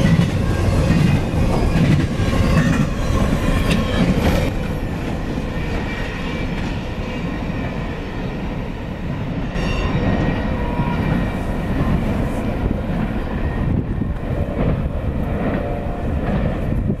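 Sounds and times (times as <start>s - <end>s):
freight train wheels rumbling on rail: 0.0s - 17.0s
high ringing tones: 9.4s - 11.2s.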